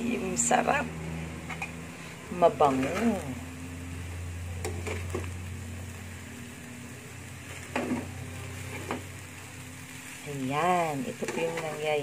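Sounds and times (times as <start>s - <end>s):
food frying in pan: 0.0s - 12.0s
spatula scraping pan: 1.4s - 3.4s, 4.6s - 5.4s, 7.4s - 9.2s, 10.9s - 12.0s.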